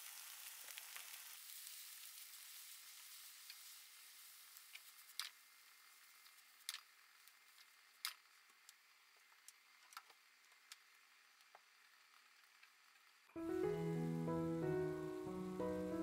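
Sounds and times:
sharp pops and crackles: 0.0s - 5.4s, 6.1s - 10.8s
vegetables frying in a pan: 0.0s - 16.0s.

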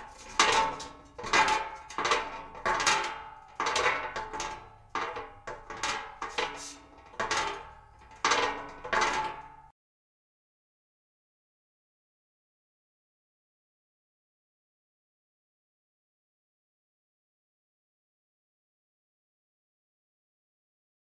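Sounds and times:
metal crashes and clangs: 0.0s - 9.7s.

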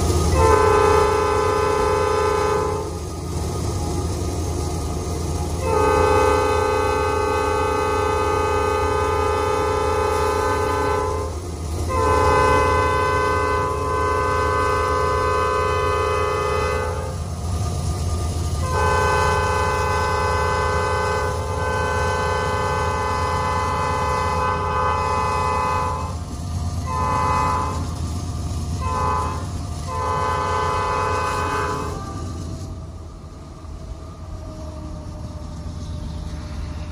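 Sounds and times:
locomotive air horn blasts: 0.2s - 3.0s, 5.5s - 17.3s, 18.6s - 28.1s, 28.7s - 32.5s.

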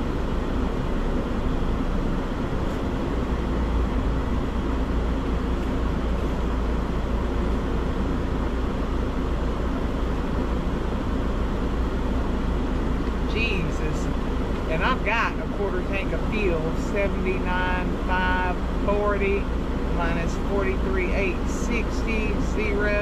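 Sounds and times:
diesel truck engine rumbling: 0.0s - 23.0s.

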